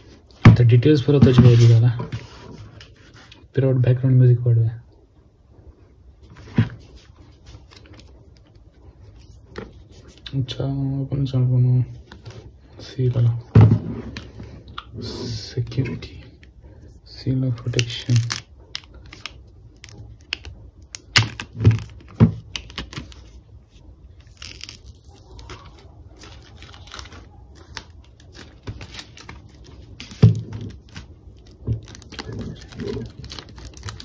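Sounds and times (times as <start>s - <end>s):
plastic wrap rustling: 6.2s - 10.3s, 17.6s - 34.0s.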